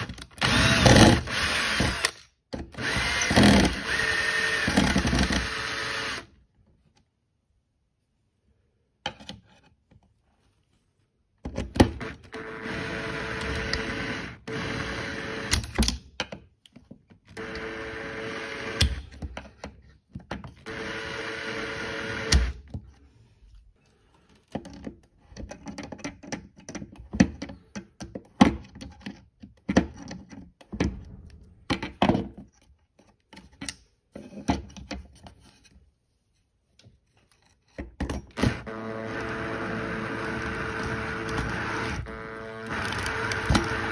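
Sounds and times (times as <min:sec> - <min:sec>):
cordless drill whirring: 0:00.0 - 0:06.3, 0:11.9 - 0:15.7, 0:17.4 - 0:19.1, 0:20.6 - 0:22.6, 0:38.3 - 0:43.9.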